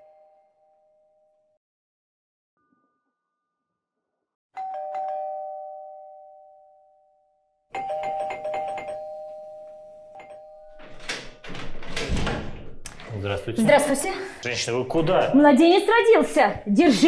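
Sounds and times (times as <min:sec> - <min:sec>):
two-tone doorbell chime: 0:04.6 - 0:11.4
door unlocking handling noise: 0:10.7 - 0:13.1.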